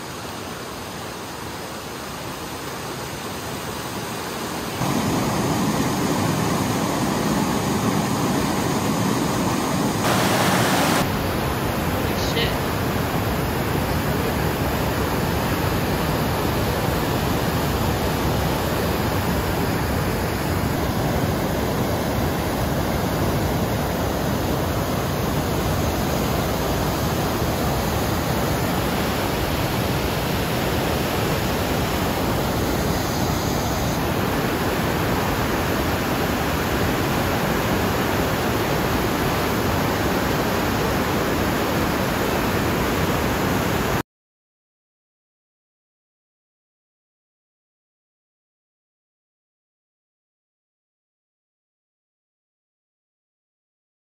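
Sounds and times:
river rushing over spillway: 0:00.0 - 0:44.0.

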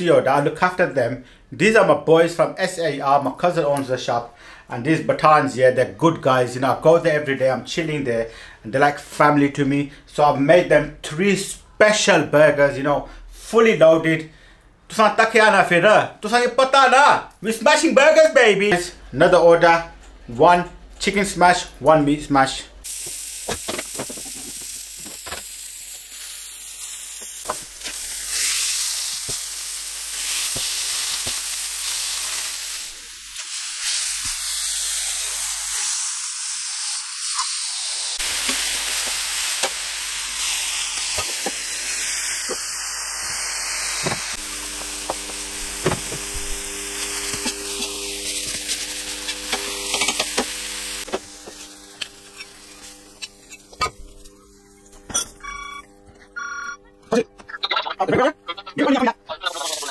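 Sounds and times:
burger patties sizzling on griddle: 0:22.8 - 0:55.0, 0:59.4 - 0:59.9.

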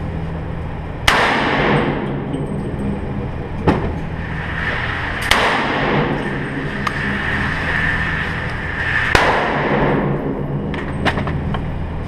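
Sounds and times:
gunshots ringing indoors: 0:01.0 - 0:02.9, 0:03.7 - 0:11.4.

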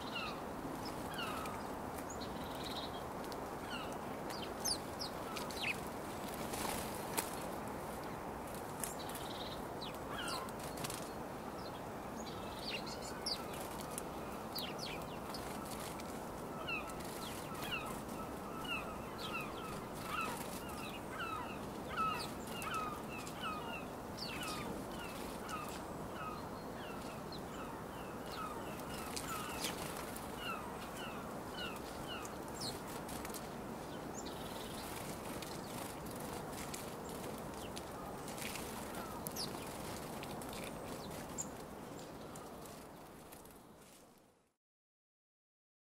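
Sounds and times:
sparrows chirping: 0:01.1 - 0:03.0, 0:03.7 - 0:05.9, 0:08.8 - 0:42.8
wing flutters: 0:32.6 - 0:33.6, 0:34.4 - 0:41.6.

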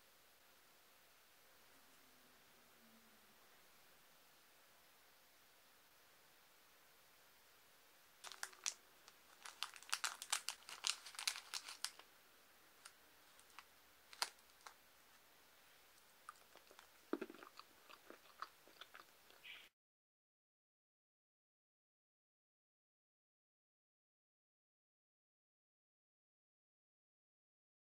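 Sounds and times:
candy being crunched: 0:08.2 - 0:12.1, 0:12.8 - 0:14.8, 0:16.3 - 0:19.0
plastic wrapper crinkling: 0:08.2 - 0:12.1, 0:12.8 - 0:14.8, 0:16.3 - 0:19.0.

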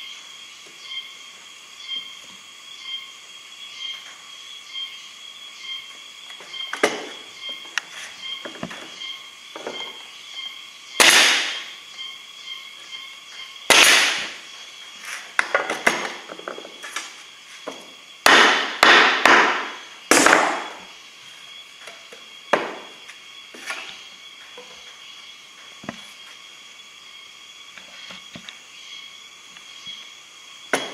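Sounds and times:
pneumatic nail gun shots: 0:11.0 - 0:11.7, 0:13.7 - 0:14.4.

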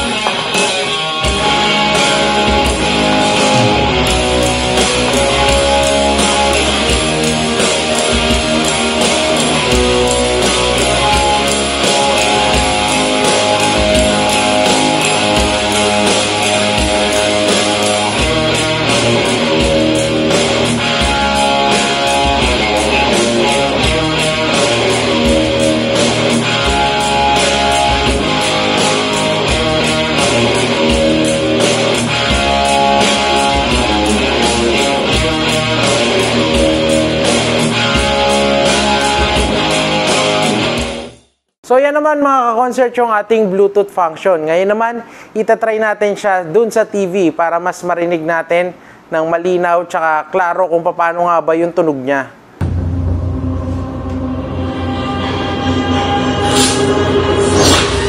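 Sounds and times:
guitar music with drum beat: 0:00.0 - 0:41.2.

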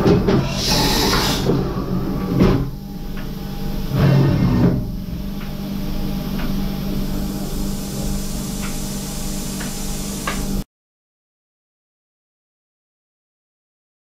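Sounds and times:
machine hum: 0:00.0 - 0:10.6.

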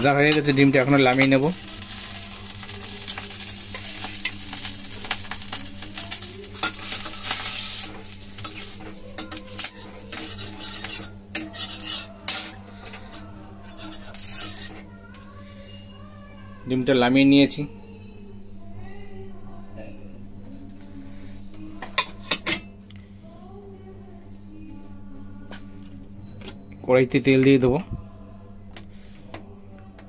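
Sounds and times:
hot oil sizzling: 0:00.0 - 0:14.9
metal spatula scraping a wok: 0:06.5 - 0:14.9.

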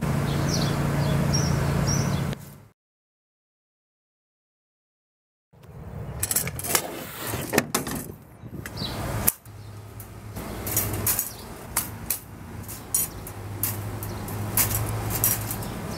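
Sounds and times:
metal cage rattling and clinking: 0:06.2 - 0:06.8, 0:10.0 - 0:15.9.

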